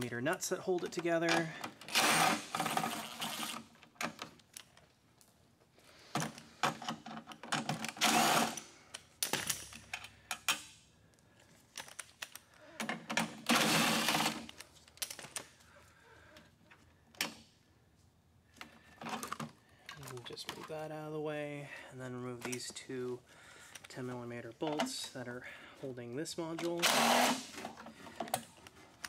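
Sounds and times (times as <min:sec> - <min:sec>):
cordless drill running: 0:01.9 - 0:03.6, 0:08.0 - 0:08.6, 0:13.5 - 0:14.4, 0:26.8 - 0:27.5.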